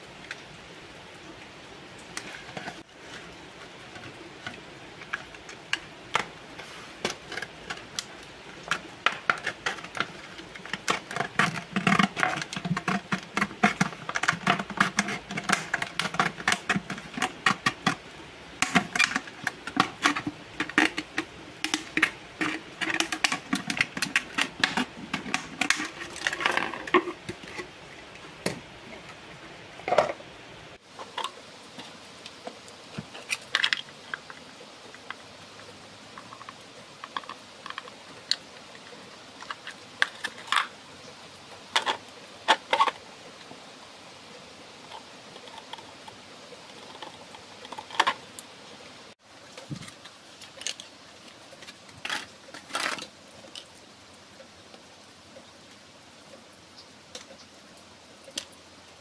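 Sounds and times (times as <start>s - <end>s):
plastic bottle crackling: 2.2s - 28.6s, 39.4s - 40.8s, 44.9s - 48.4s
plastic bottle creaking: 3.9s - 27.8s, 36.1s - 38.8s, 41.7s - 43.0s, 44.9s - 48.4s, 51.6s - 53.7s.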